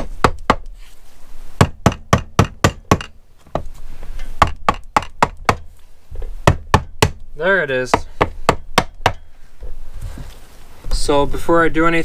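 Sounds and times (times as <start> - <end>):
mallet knocking on engine casing: 1.6 - 3.7, 4.4 - 5.6, 6.2 - 7.2, 8.0 - 9.2.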